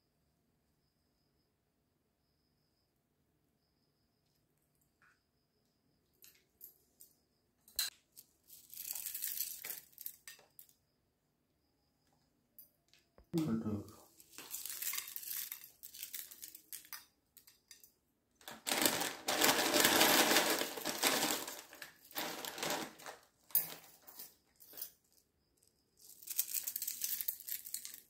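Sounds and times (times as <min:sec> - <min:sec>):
dry flakes crunching by hand: 0:14.3 - 0:16.8, 0:18.4 - 0:23.2.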